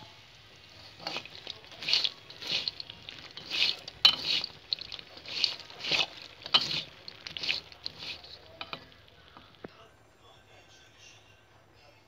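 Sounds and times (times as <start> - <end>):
spatula scraping dry food in wok: 0.7 - 9.6.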